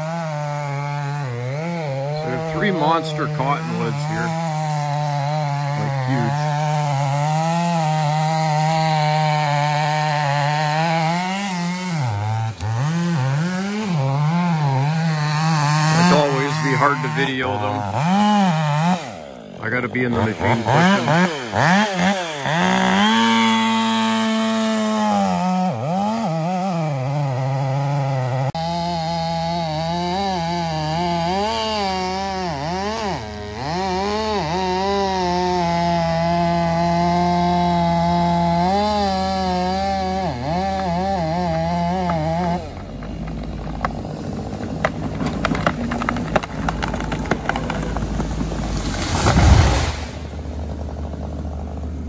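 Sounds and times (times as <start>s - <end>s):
chainsaw cutting wood: 0.0s - 52.0s
tree cracking: 0.0s - 52.0s
heavy machine engine hum: 37.2s - 52.0s.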